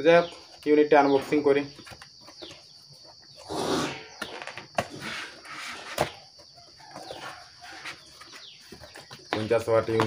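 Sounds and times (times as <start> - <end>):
cardboard rustling: 0.2 - 3.5, 4.6 - 10.0
scuffs on cardboard: 5.0 - 10.0.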